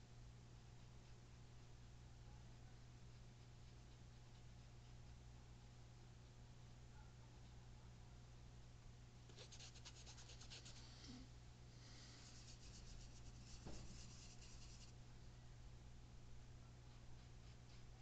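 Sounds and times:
low steady hum: 0.0 - 18.0
paintbrush scratching on palette: 9.3 - 10.9, 12.0 - 14.9.

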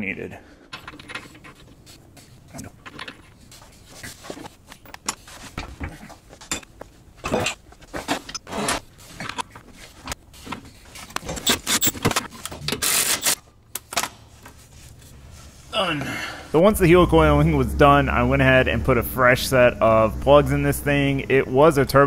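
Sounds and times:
metal clinking and knocking: 4.8 - 8.4.

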